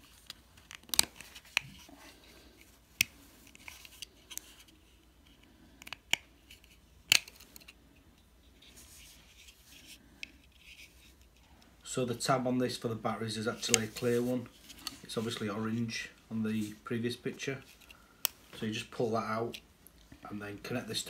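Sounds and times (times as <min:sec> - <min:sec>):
plastic casing clicks and snaps: 0:00.3 - 0:01.7, 0:05.8 - 0:07.8.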